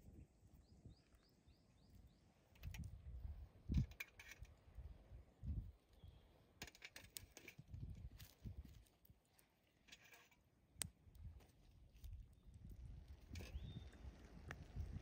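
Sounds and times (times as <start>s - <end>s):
bird chirping: 0.6s - 2.4s, 13.3s - 14.1s.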